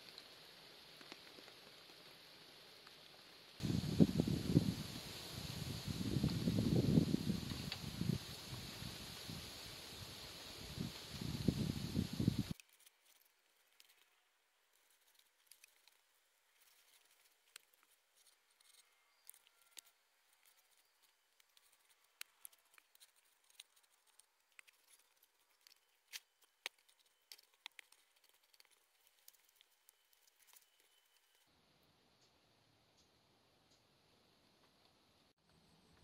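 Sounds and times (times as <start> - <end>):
small clicks and snips of handwork: 12.5 - 31.5.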